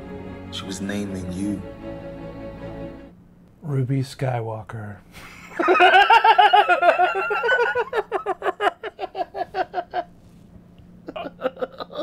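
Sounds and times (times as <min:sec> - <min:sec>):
man laughing hard: 0:05.2 - 0:10.1, 0:11.0 - 0:12.0.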